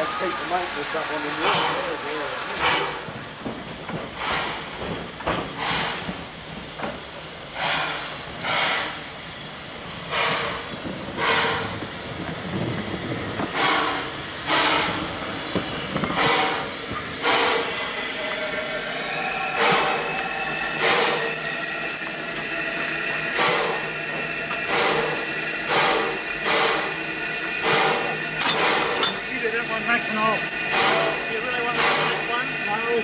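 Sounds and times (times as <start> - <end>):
steady hiss of steam: 0.0 - 33.0
steam locomotive chuffing: 0.0 - 33.0.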